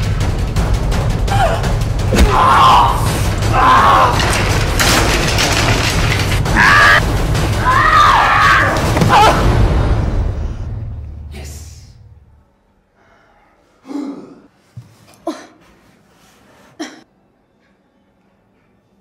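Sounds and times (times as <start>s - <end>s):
low booming music score: 0.0s - 12.4s.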